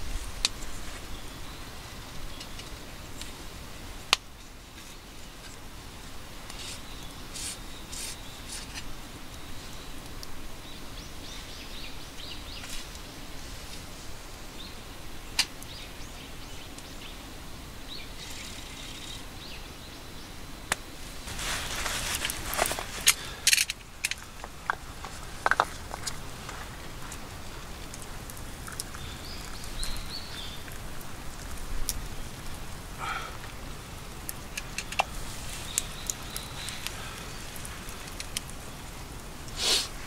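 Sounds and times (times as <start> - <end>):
rustling: 20.9 - 40.0
bird chirps: 35.6 - 37.6.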